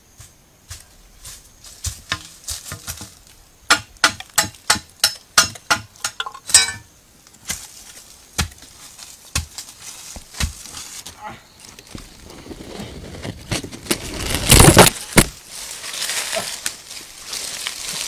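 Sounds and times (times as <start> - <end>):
sharp knocks on bamboo: 1.8 - 6.8, 8.4 - 8.7, 9.3 - 9.6, 10.2 - 10.7.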